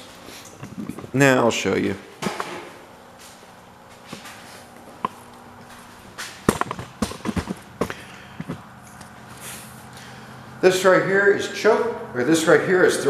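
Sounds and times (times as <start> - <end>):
faint steady hum: 0.0 - 13.0
footsteps: 2.6 - 10.0
handling knocks: 6.4 - 8.6.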